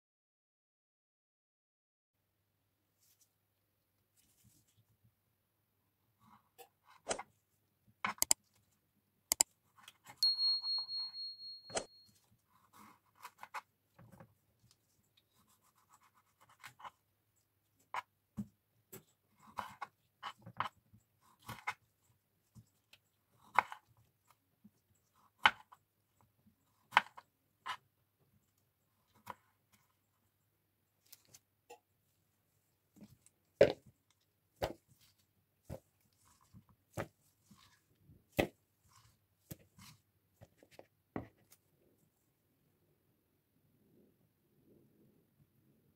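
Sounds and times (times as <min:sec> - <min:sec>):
soft rustling: 0:04.1 - 0:05.0
high-pitched beep: 0:10.2 - 0:12.1.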